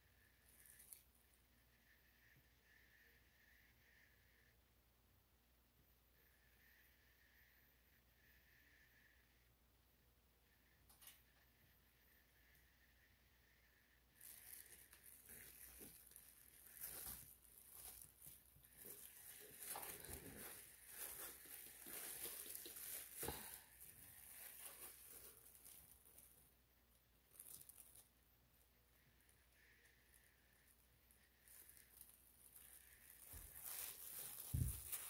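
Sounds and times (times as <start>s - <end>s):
plastic bag crinkling: 14.2s - 26.4s, 27.3s - 28.1s, 31.4s - 35.0s.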